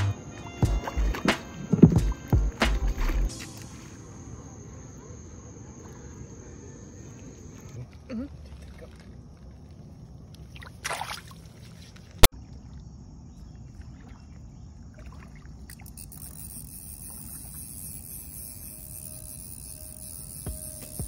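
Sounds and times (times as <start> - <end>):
high insect chorus: 0.0 - 21.0
water lapping: 0.2 - 18.0
water splash: 0.6 - 4.2, 7.6 - 12.8.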